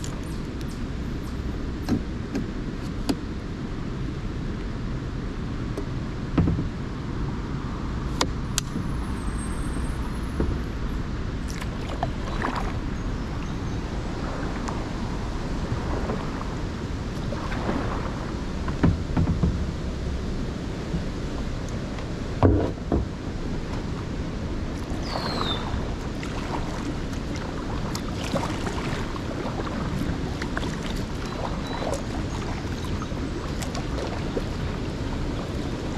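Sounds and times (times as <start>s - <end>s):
paddle splashing in water: 11.4s - 19.7s, 22.0s - 35.9s.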